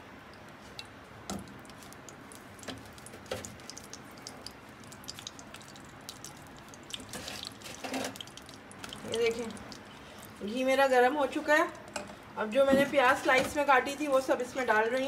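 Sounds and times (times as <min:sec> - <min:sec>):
ghee crackling in a hot pan: 0:01.4 - 0:11.4.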